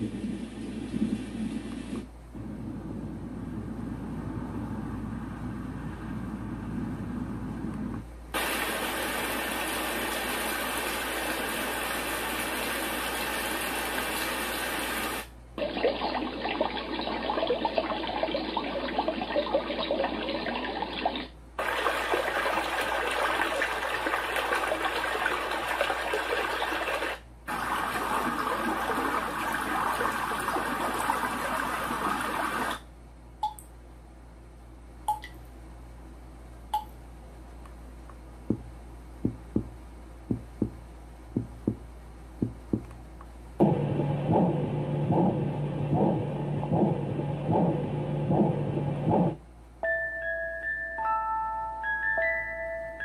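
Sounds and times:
white noise machine rushing: 0.0 - 15.4, 43.6 - 49.4.

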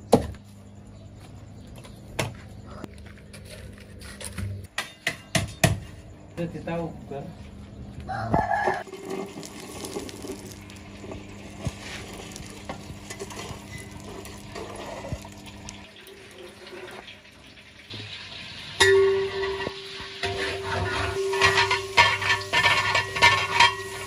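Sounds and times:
coals clinking: 8.7 - 16.3, 18.7 - 24.0
metal shovel scraping embers: 8.8 - 15.8, 18.8 - 24.0.

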